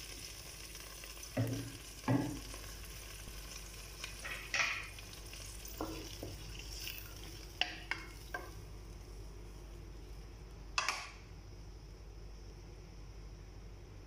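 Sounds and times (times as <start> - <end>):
simmering pot hiss: 0.0 - 10.7.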